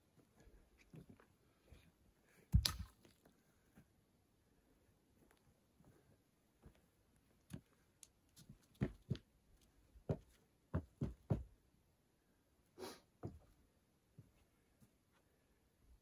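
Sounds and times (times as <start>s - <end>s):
boot footsteps on steps and deck: 8.4s - 11.6s.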